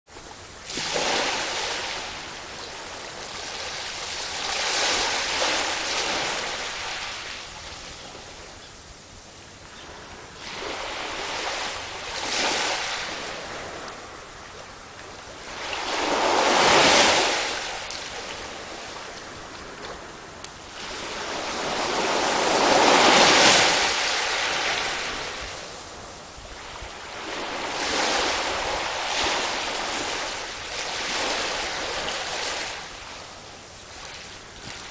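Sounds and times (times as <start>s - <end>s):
sea waves washing onto beach: 0.1s - 34.9s.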